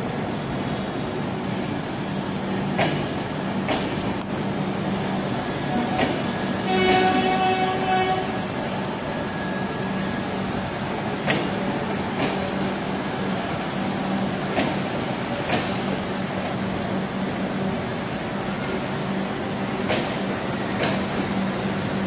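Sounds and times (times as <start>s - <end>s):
low train hum: 0.0s - 22.0s
train wheels clicking over rail joints: 0.0s - 22.0s
train horn blast: 5.7s - 8.6s.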